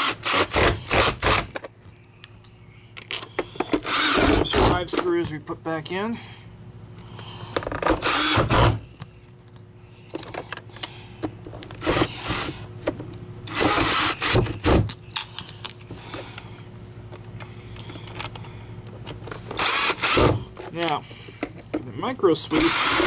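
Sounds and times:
power screwdriver motor: 0.0 - 1.5, 3.8 - 4.8, 7.9 - 8.8, 11.8 - 12.6, 13.5 - 14.8, 19.6 - 20.4, 22.5 - 23.0.

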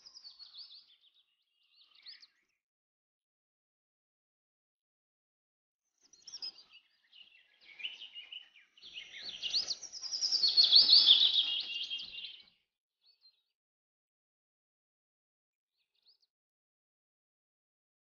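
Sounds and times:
birds chirping: 6.2 - 12.5.

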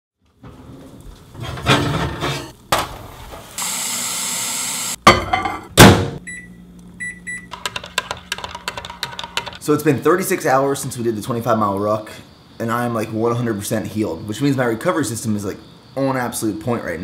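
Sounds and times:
microwave humming: 2.0 - 9.7
keypad beeps: 6.3 - 7.6.

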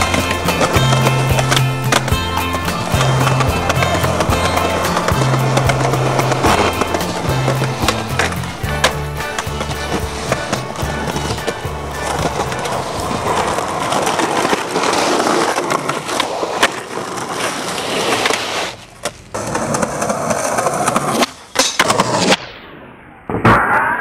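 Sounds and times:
skateboard clacks: 0.0 - 22.3
skateboard wheels rolling: 0.0 - 24.0.

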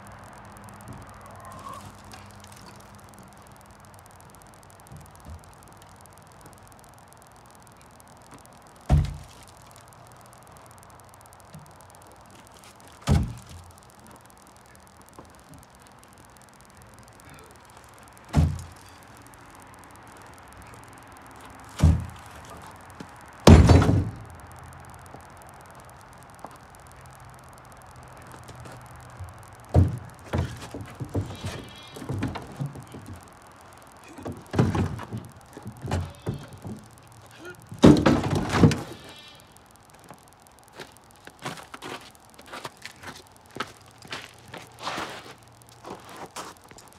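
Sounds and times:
cargo bed thumping: 8.9 - 9.3, 13.1 - 13.5, 18.3 - 18.7, 21.8 - 22.2, 23.5 - 24.3, 29.7 - 33.1, 34.2 - 36.8, 37.7 - 39.0
footsteps in snow: 40.8 - 46.8.

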